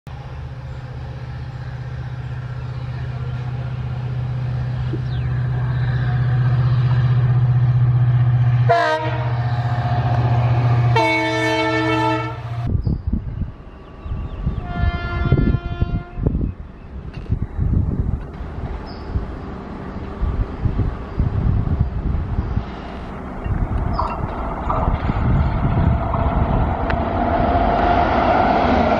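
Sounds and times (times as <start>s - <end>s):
diesel locomotive engine droning: 0.1s - 28.9s
locomotive horn blasts: 8.6s - 9.5s, 10.8s - 12.7s, 14.6s - 16.3s
train wheels clattering over rails: 22.8s - 28.9s.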